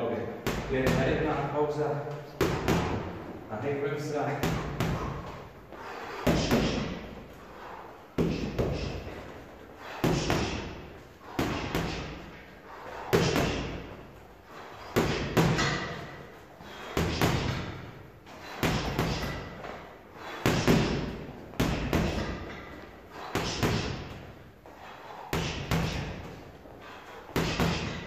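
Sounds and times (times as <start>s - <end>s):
gloves punching heavy bag: 6.2s - 7.1s, 8.2s - 14.0s, 14.8s - 24.3s, 25.1s - 28.0s.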